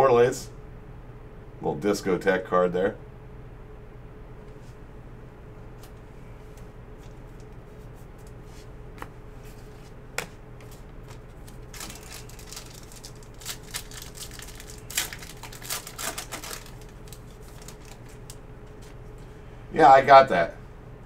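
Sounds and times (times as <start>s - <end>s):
faint steady hum: 0.0s - 21.0s
cards rustling and snapping: 9.0s - 19.0s.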